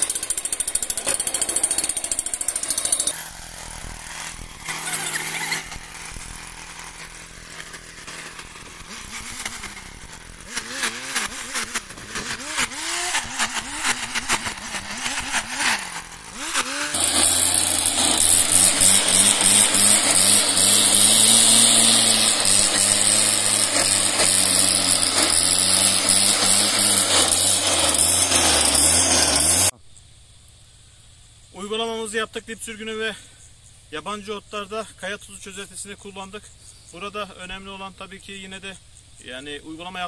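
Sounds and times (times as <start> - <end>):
small petrol engine running: 0.0 - 29.8.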